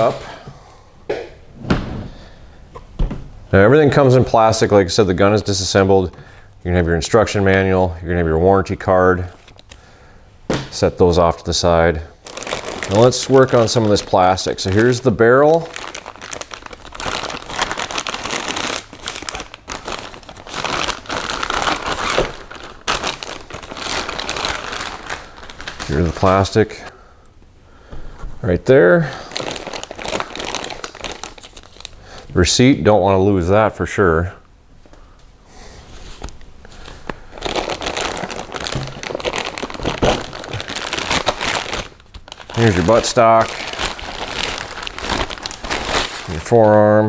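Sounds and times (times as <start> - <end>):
plastic wrapping crinkling: 12.2 - 26.9, 29.1 - 32.3, 36.1 - 46.8.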